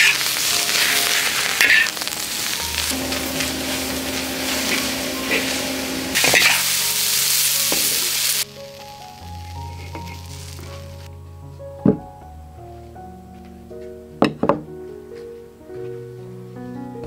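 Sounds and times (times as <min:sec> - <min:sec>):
greens sizzling in a wok: 0:00.0 - 0:11.1.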